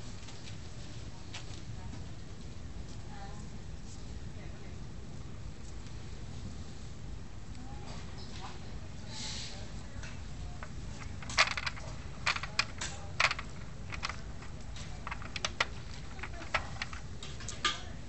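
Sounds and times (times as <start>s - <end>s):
small metal screws clicking: 10.6s - 17.0s.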